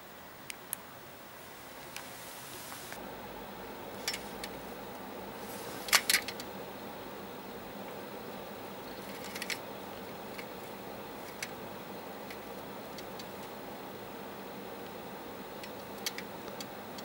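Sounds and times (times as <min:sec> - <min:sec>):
steady hiss: 0:00.0 - 0:17.0
mouse clicking in wire cage: 0:09.0 - 0:09.6, 0:15.6 - 0:17.0.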